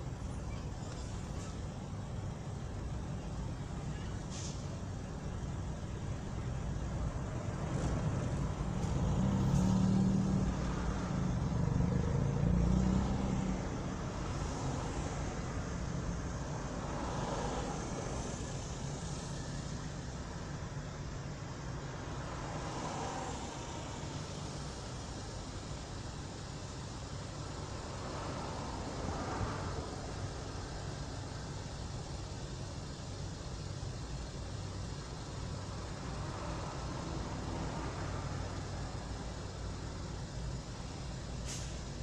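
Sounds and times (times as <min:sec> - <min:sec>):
car engine and road hum: 0:00.0 - 0:42.0.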